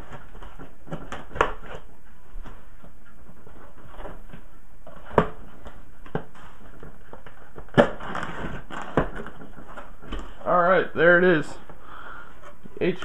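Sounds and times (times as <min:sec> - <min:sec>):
cardboard flaps rustling: 0:00.0 - 0:10.5
knife cutting cardboard box: 0:07.6 - 0:10.2.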